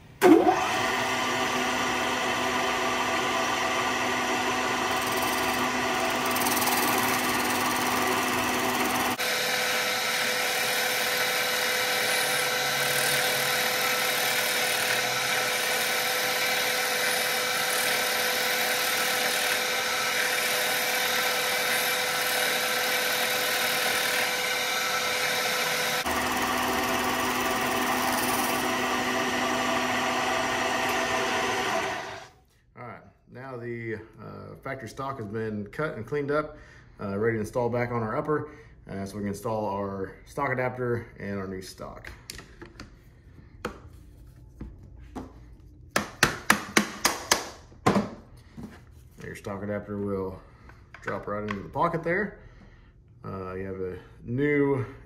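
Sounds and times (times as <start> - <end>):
milling machine cutting plastic: 0.2 - 32.3.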